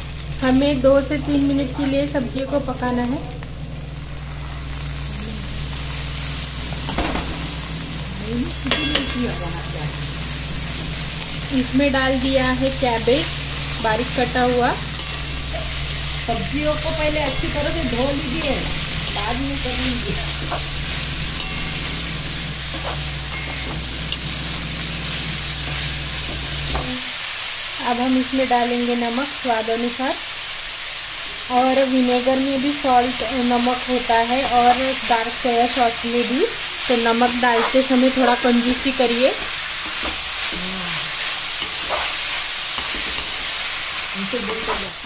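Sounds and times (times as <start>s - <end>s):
vegetables sizzling in pan: 0.0s - 45.0s
metal spatula scraping a pan: 37.2s - 40.3s, 41.2s - 43.6s.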